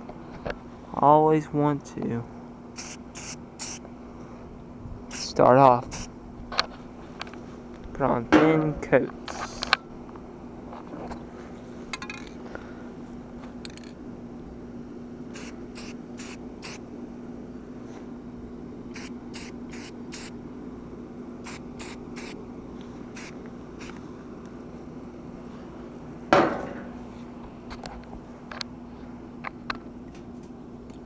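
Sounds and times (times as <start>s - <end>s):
steady low hum: 0.0s - 31.0s
spray paint can hissing: 2.8s - 3.8s, 5.1s - 6.1s, 15.3s - 16.8s, 18.9s - 20.3s, 21.4s - 22.4s, 23.2s - 24.0s.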